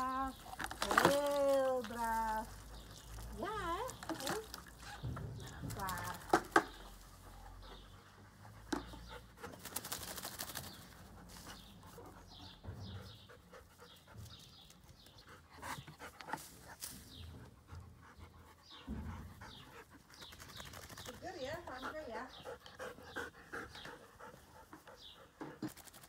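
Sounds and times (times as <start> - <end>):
dog panting: 6.7 - 9.9, 11.0 - 25.8.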